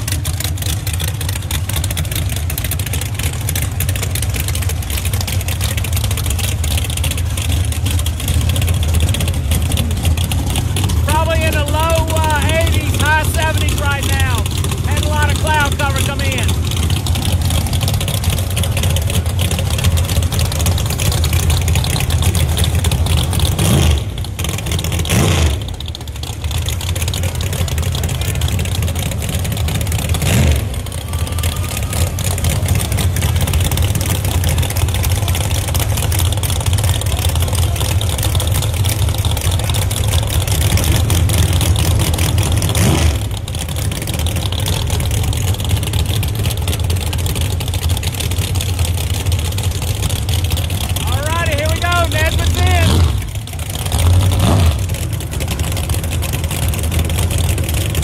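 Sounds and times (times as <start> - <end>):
race car engines rumbling: 0.0 - 58.0.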